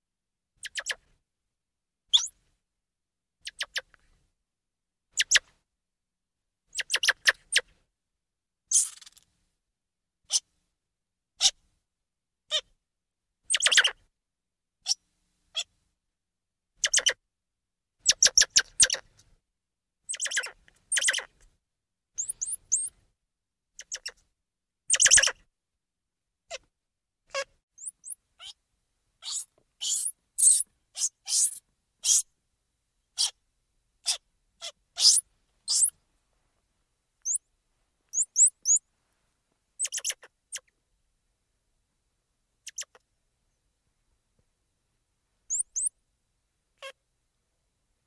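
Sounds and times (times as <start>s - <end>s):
monkey chirps and squeaks: 0.6s - 1.0s, 2.1s - 2.3s, 3.4s - 3.8s, 5.2s - 5.4s, 6.7s - 7.6s, 8.7s - 9.2s, 13.5s - 13.9s, 16.8s - 17.2s, 18.0s - 19.0s, 20.1s - 21.3s, 22.2s - 22.9s, 23.8s - 24.2s, 24.9s - 25.4s, 27.3s - 28.6s, 29.2s - 32.3s, 33.2s - 33.4s, 34.0s - 36.0s, 37.2s - 37.4s, 38.1s - 38.8s, 39.8s - 40.7s, 42.7s - 43.0s, 45.5s - 45.9s.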